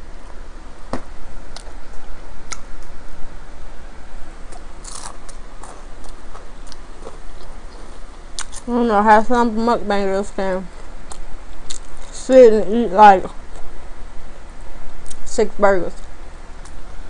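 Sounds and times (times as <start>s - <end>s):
close chewing of pizza: 4.5s - 8.7s
small crunches: 4.5s - 8.7s.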